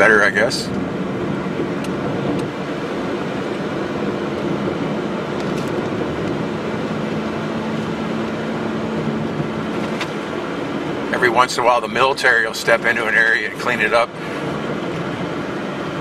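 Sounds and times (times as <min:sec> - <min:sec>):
road and engine noise in car: 0:00.0 - 0:16.0.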